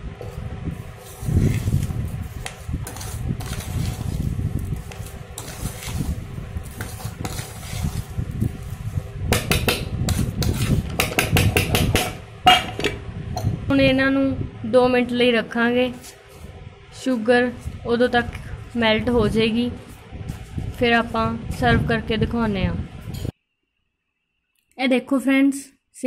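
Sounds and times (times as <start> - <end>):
steel spoon scraping a pot: 0.2 - 11.8.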